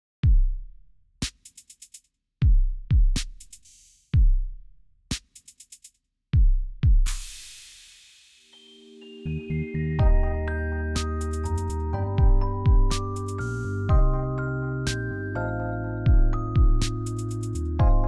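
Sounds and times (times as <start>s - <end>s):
deep kick drum hits: 0.2s - 0.6s, 2.4s - 3.2s, 4.2s - 4.5s, 6.4s - 7.1s, 10.0s - 10.4s, 12.2s - 13.0s, 13.9s - 14.4s, 16.1s - 16.9s, 17.8s - 18.0s
hi-hat ticks: 1.2s - 2.1s, 3.2s - 4.1s, 5.1s - 6.0s, 16.8s - 17.8s
sharp snare hits: 7.1s - 8.0s.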